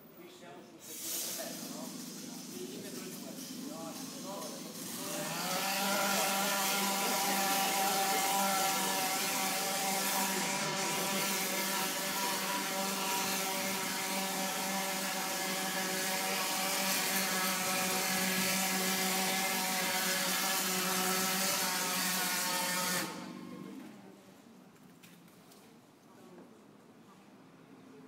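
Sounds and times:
hiss of plaster spraying: 0.8s - 22.7s
plaster spraying machine humming: 0.9s - 23.9s.

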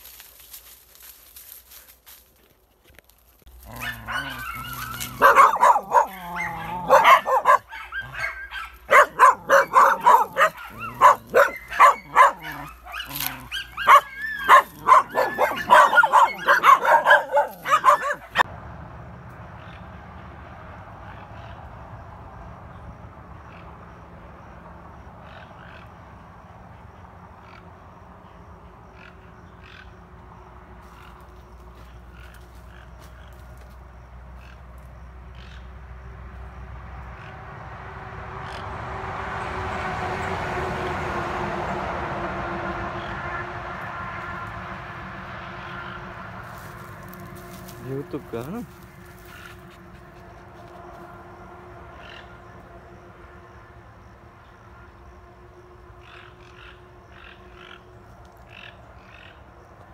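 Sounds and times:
dogs barking excitedly: 3.5s - 18.5s.

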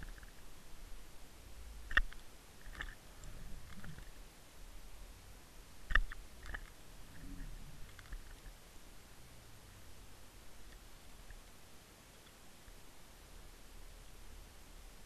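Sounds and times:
sharp clicks: 1.9s - 4.1s, 5.9s - 8.5s
muffled underwater rumble: 3.0s - 4.2s, 6.9s - 8.6s.

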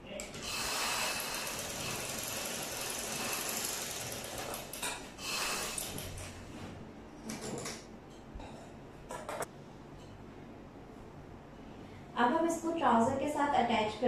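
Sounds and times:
sewing machine running: 0.4s - 6.2s.

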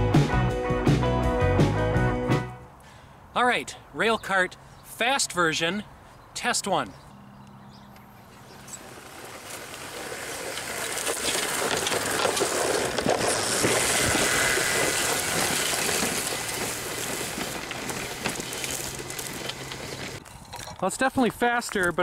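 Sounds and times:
rail cart rattling on track: 8.6s - 20.2s.

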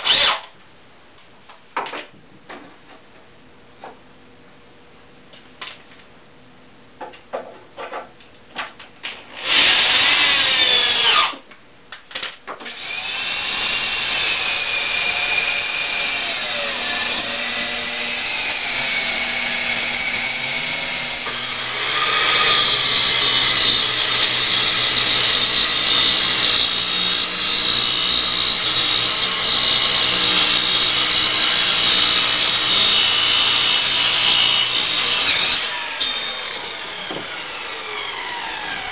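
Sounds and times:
circular saw cutting plywood: 12.7s - 38.9s
cordless drill running: 12.7s - 38.9s.

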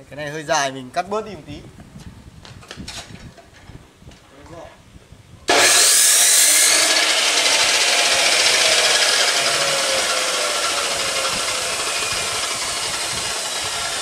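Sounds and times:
power saw cutting pipe: 5.5s - 14.0s.

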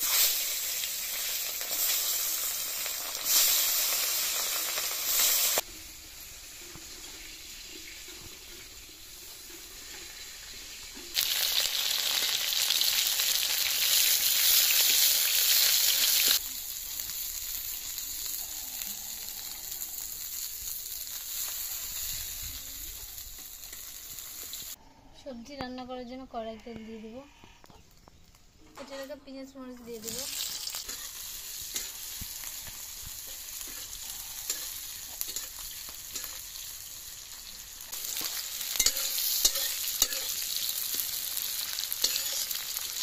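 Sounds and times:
fish frying in hot oil: 0.0s - 24.8s, 29.9s - 43.0s
spatula stirring: 38.1s - 41.1s.

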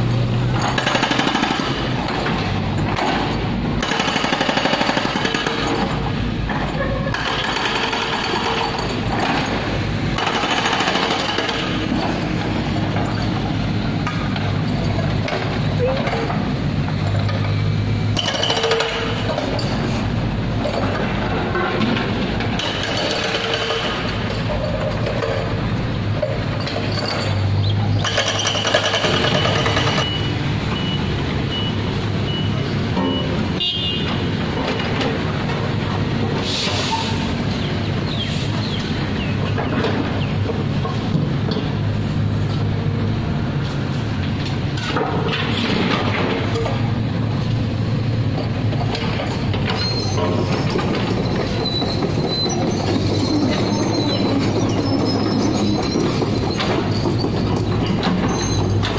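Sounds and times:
excavator engines humming: 0.0s - 58.9s
hydraulic breaker pounding asphalt: 0.1s - 36.8s, 44.3s - 58.9s
reversing alarm beeping: 28.2s - 34.0s.

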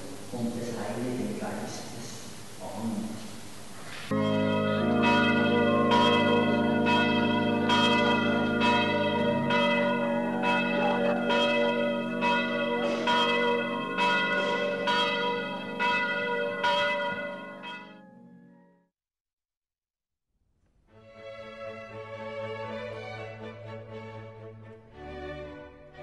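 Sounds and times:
church bells pealing: 4.1s - 18.8s.

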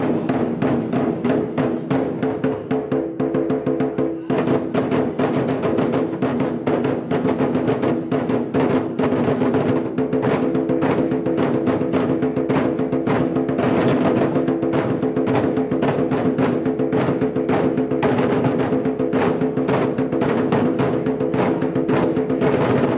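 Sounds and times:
large drums beaten fast: 0.0s - 22.9s.

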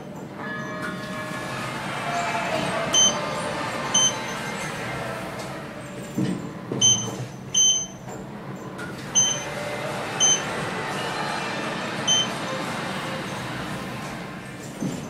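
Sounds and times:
steady background hum: 0.0s - 15.0s
elevator button beeps: 2.9s - 3.2s, 3.9s - 4.4s, 6.8s - 8.1s, 9.1s - 9.6s, 10.2s - 10.5s, 12.1s - 12.4s.

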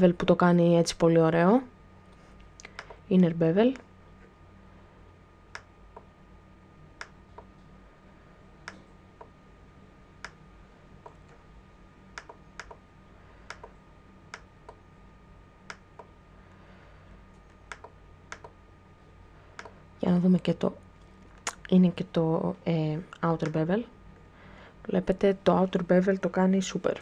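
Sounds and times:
faint steady hum: 0.0s - 27.0s
computer mouse clicks: 2.6s - 3.0s, 5.5s - 6.1s, 12.2s - 12.8s, 13.5s - 14.8s, 17.4s - 18.6s, 19.6s - 19.8s.

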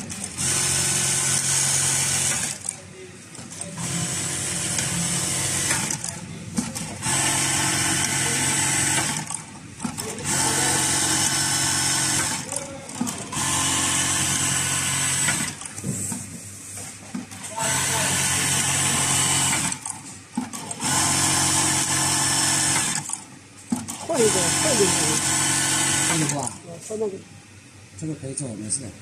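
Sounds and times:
sewing machine whine: 0.0s - 2.7s, 6.8s - 15.7s, 17.3s - 19.9s, 20.5s - 23.2s, 23.9s - 26.6s.

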